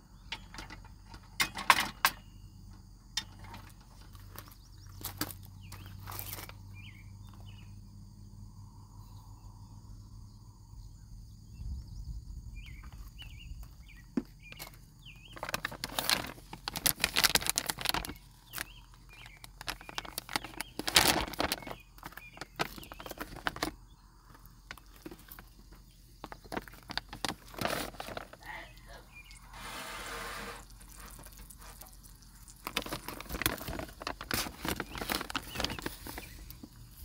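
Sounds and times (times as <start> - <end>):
birds chirping: 3.5 - 8.2, 9.0 - 16.4, 17.2 - 37.0
plastic bag crinkling: 14.6 - 23.8, 24.4 - 28.6, 30.6 - 36.8.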